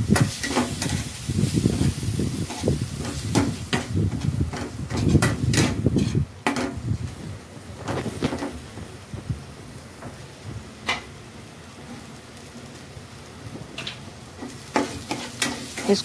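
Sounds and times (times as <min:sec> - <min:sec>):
masala sizzling: 0:00.0 - 0:16.0
metal spoon scraping a pan: 0:00.1 - 0:06.8, 0:14.4 - 0:16.0.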